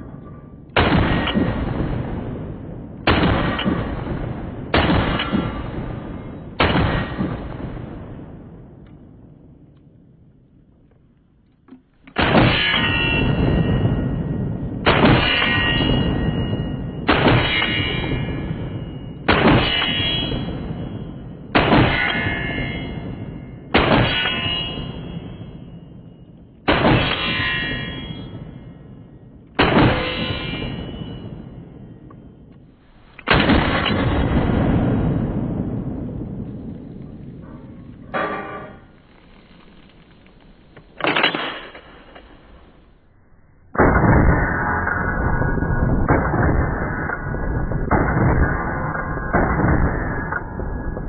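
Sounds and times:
shotgun shots: 0:00.8 - 0:08.8, 0:12.1 - 0:40.1
steel targets clanging: 0:11.8 - 0:34.4, 0:37.4 - 0:42.9.

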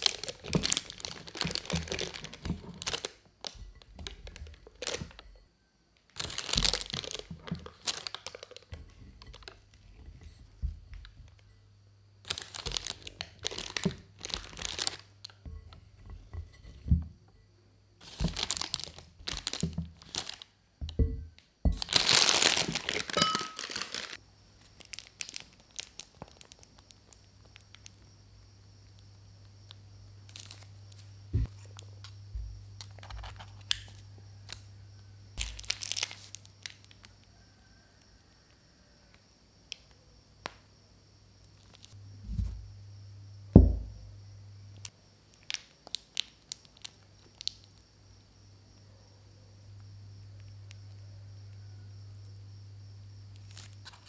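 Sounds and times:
plastic piping bag crinkling: 0:00.0 - 0:05.3, 0:06.1 - 0:09.8, 0:12.2 - 0:15.4, 0:18.0 - 0:21.0, 0:21.8 - 0:28.0, 0:30.3 - 0:32.1, 0:35.4 - 0:37.1, 0:44.8 - 0:47.8
steady low hum: 0:42.0 - 0:44.9.

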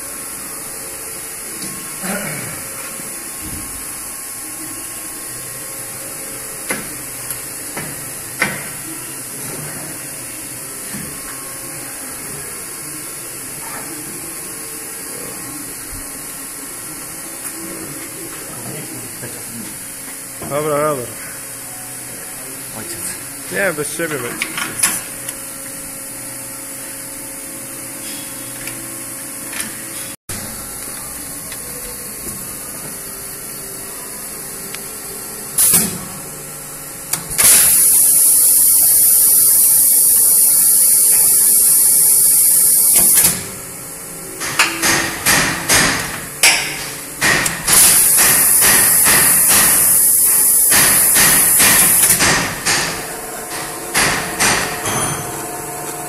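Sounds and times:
machine motor hum: 0:47.1 - 0:56.0.

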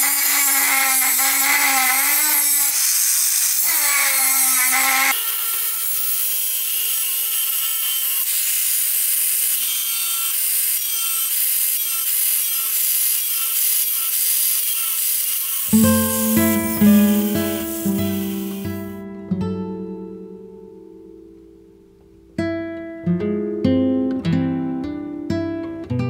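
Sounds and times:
angle grinder cutting metal: 0:00.0 - 0:19.0
acoustic guitar music: 0:15.7 - 0:26.0.

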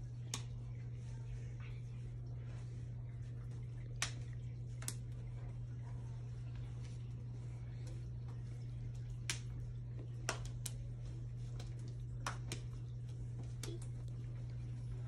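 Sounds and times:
low hum: 0:00.0 - 0:15.0
faint sharp clicks and taps: 0:03.5 - 0:05.5, 0:07.7 - 0:14.7.

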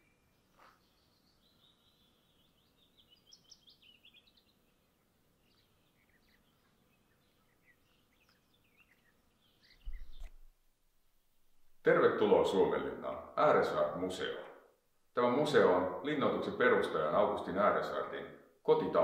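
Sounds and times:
songbird chirping and trilling: 0:00.0 - 0:10.5.

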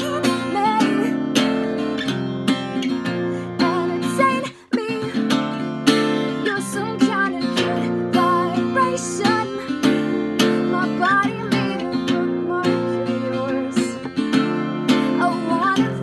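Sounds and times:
acoustic guitar strumming: 0:00.0 - 0:16.0
person singing softly: 0:06.4 - 0:14.1, 0:14.9 - 0:16.0.

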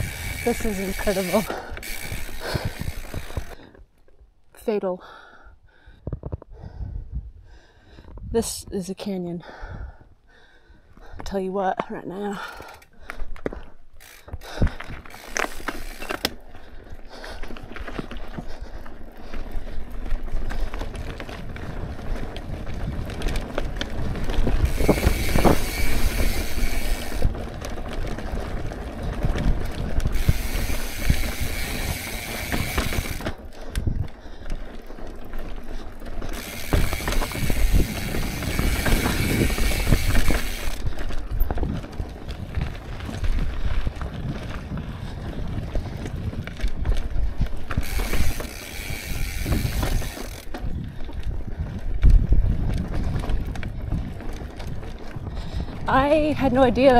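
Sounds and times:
bike hub ratchet buzzing: 0:00.0 - 0:03.6, 0:14.0 - 0:16.4, 0:24.5 - 0:27.4, 0:29.9 - 0:33.4, 0:36.2 - 0:40.9, 0:47.6 - 0:50.6
bike rolling over rough trail: 0:00.0 - 0:04.1, 0:12.3 - 0:56.9.

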